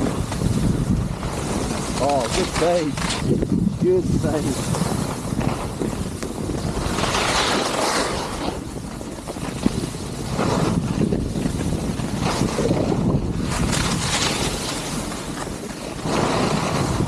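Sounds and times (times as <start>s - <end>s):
skis scraping on snow: 0.0s - 17.0s
wind rushing over microphone: 0.0s - 17.0s.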